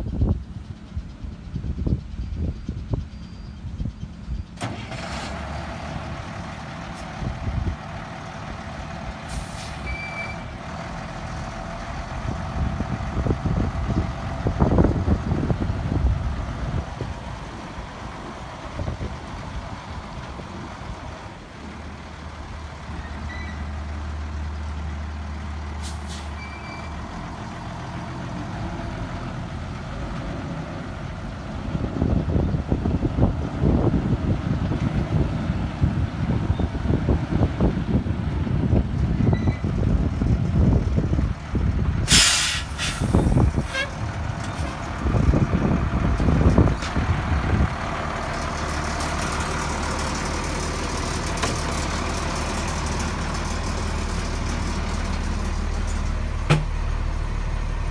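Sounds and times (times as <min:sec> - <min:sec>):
wind rumbling on microphone: 0:00.0 - 0:04.5, 0:07.0 - 0:09.2, 0:10.7 - 0:22.9, 0:27.6 - 0:50.3
truck engine running: 0:00.0 - 0:57.9
air-brake hisses: 0:42.1 - 0:43.8.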